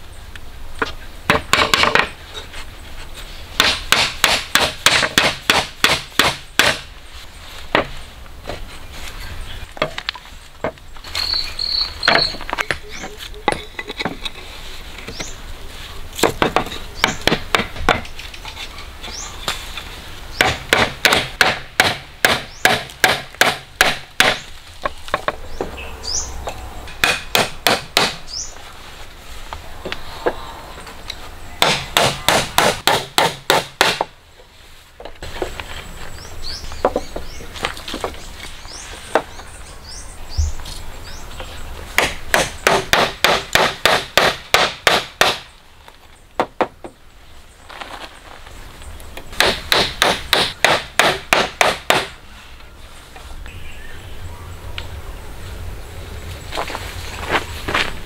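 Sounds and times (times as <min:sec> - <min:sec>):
tool strikes on wood: 0:00.8 - 0:02.1, 0:03.6 - 0:06.9, 0:07.7 - 0:07.9, 0:16.2 - 0:18.1, 0:20.4 - 0:25.7, 0:26.9 - 0:28.2, 0:31.6 - 0:34.1, 0:42.0 - 0:45.5, 0:49.3 - 0:52.2.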